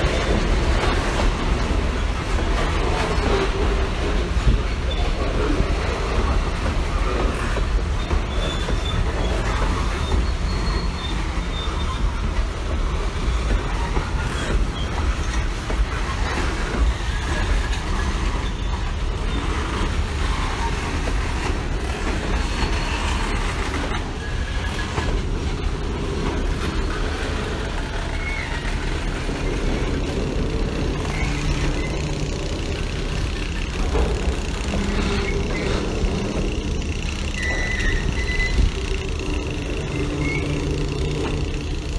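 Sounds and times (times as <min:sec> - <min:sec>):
freight train wheels rumbling: 0:00.0 - 0:41.9
faint wheel squeal: 0:06.8 - 0:25.3, 0:26.2 - 0:30.2, 0:30.8 - 0:32.6, 0:34.6 - 0:41.6.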